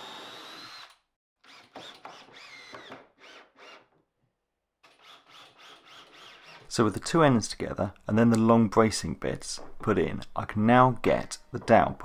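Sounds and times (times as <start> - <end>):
cordless drill driving screws: 0.0 - 3.9, 4.9 - 6.7.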